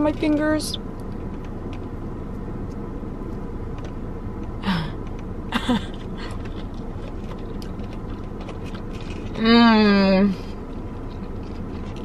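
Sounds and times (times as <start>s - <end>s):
car cabin hum: 0.0s - 12.0s
chewing clicks: 6.0s - 9.4s, 10.7s - 12.0s.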